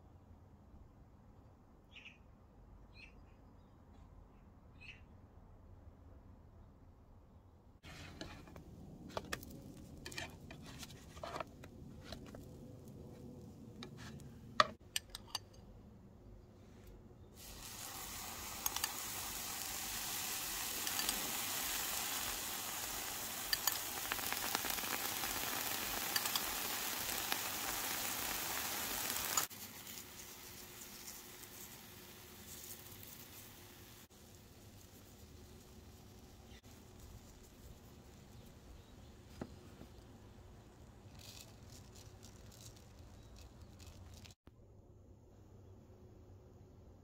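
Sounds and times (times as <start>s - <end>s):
pancakes sizzling in a pan: 17.4s - 36.7s
utensils clicking against pan: 20.8s - 21.3s, 23.4s - 27.4s.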